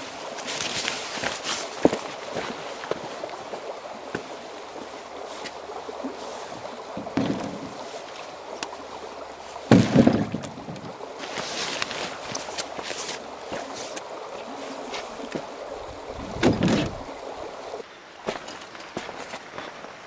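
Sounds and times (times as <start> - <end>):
footsteps on rock: 0.4 - 3.1, 18.2 - 19.7
bags knocking in canoe hull: 7.0 - 7.9, 9.6 - 12.1.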